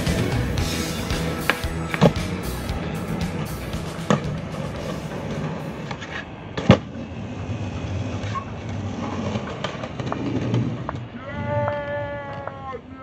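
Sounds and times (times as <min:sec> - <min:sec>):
skateboard wheels rolling on concrete: 0:00.0 - 0:13.0
skateboard clacking on ground: 0:01.4 - 0:02.3, 0:04.0 - 0:12.7.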